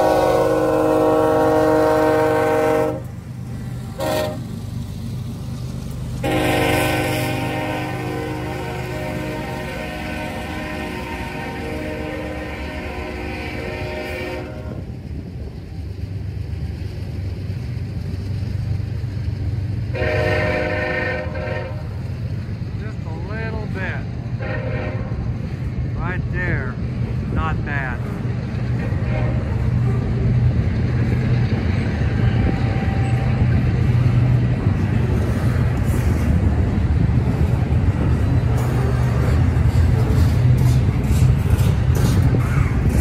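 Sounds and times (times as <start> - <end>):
train horn: 0.0 - 3.1, 4.0 - 4.5, 6.2 - 14.9, 19.9 - 22.0, 24.4 - 25.3, 28.9 - 29.6
freight train wheels rumbling on rail: 0.0 - 43.0.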